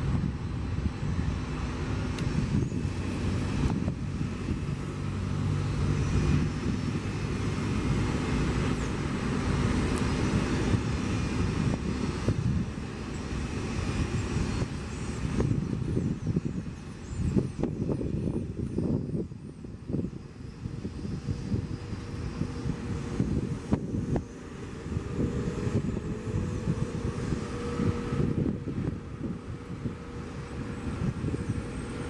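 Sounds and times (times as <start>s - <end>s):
jet engines at taxi power: 0.0s - 32.0s.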